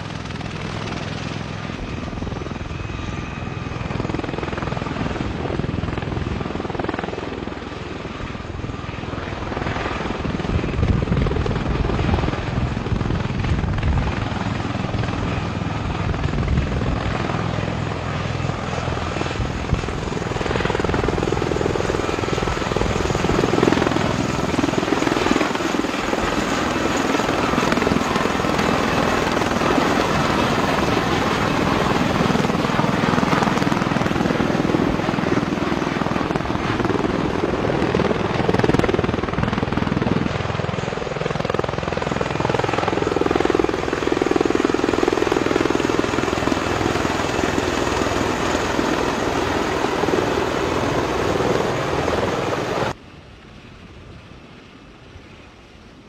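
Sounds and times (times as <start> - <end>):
aircraft rotor and engine drone: 0.0 - 56.0.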